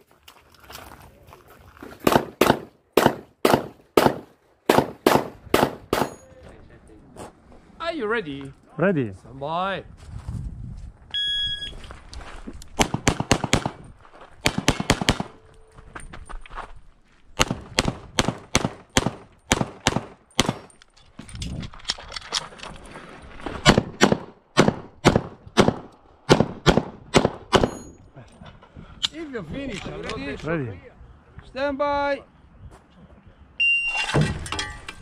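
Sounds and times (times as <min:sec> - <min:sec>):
rapid pistol fire: 0:02.1 - 0:06.1, 0:12.8 - 0:13.8, 0:14.5 - 0:15.3, 0:17.4 - 0:20.6, 0:23.7 - 0:27.7
shot timer beep: 0:11.1 - 0:11.8.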